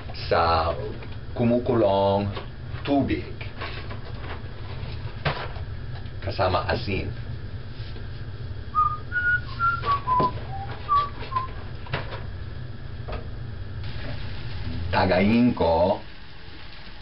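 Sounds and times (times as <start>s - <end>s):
low steady hum: 0.0s - 17.0s
person whistling a tune: 8.8s - 11.6s.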